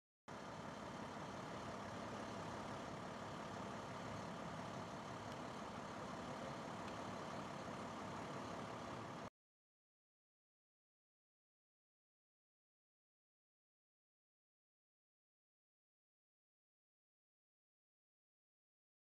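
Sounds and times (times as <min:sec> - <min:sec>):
outdoor background noise: 0:00.3 - 0:09.3
vehicle engine idling: 0:00.3 - 0:09.3.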